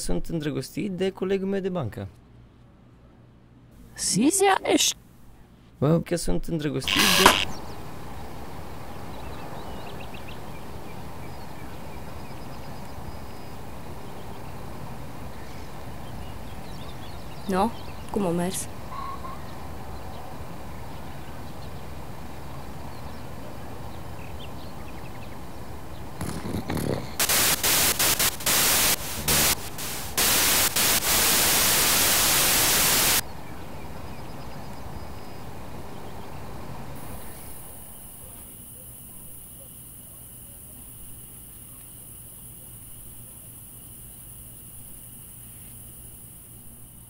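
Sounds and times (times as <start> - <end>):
low outdoor hiss: 0.0 - 47.0
crickets trilling: 6.8 - 20.0, 24.2 - 47.0
broad hiss: 6.9 - 7.5, 26.2 - 33.2, 37.0 - 38.0
faint high chirps: 6.9 - 7.7.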